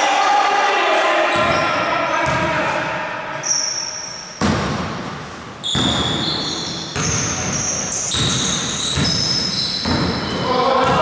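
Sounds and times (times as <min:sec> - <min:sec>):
basketball bouncing on wooden floor: 0:04.4 - 0:07.6, 0:08.2 - 0:11.0.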